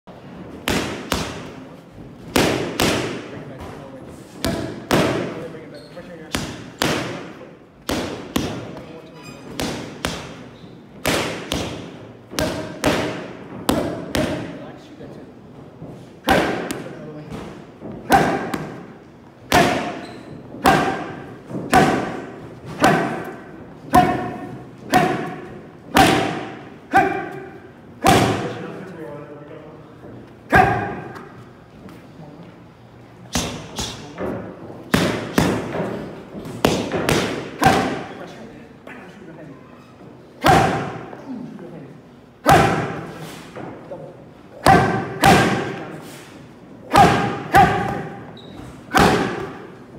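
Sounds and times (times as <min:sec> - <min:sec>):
boxing gloves smacking mitts: 0:00.5 - 0:03.8, 0:06.3 - 0:08.9, 0:09.5 - 0:14.6, 0:15.8 - 0:28.6, 0:34.8 - 0:38.2, 0:44.6 - 0:46.0, 0:46.9 - 0:49.9.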